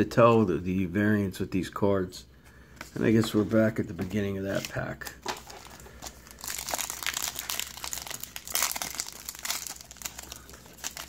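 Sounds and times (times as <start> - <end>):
foil wrapper crinkling: 4.6 - 11.0.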